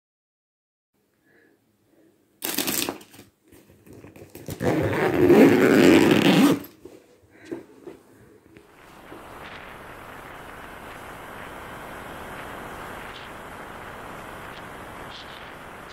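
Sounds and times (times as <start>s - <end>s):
fabric rustling: 3.6s - 7.2s
zip rasping: 4.4s - 6.8s, 8.7s - 15.9s.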